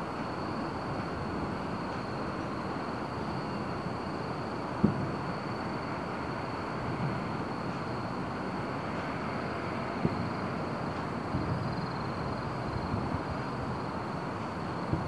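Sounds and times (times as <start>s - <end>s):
outdoor background rumble: 0.0s - 15.0s
distant firework thumps: 4.8s - 5.1s.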